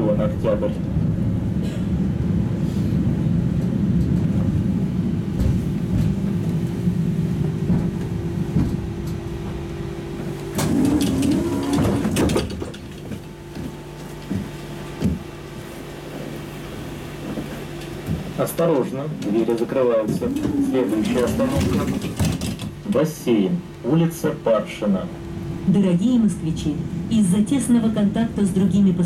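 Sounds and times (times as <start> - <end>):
tram braking tone and clatter: 0.0 - 23.8
standing tram hum: 0.0 - 29.0
tram running: 0.0 - 29.0.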